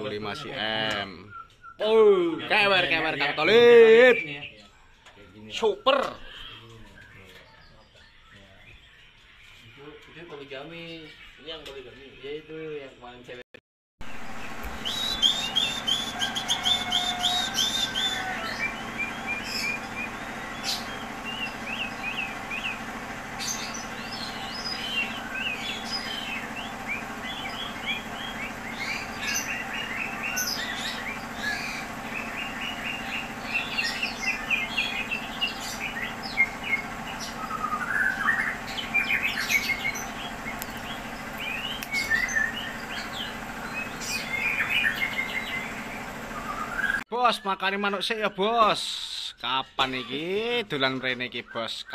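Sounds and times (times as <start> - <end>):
bird singing chirps and whistles: 1.0 - 2.1, 14.7 - 22.8, 23.5 - 47.7.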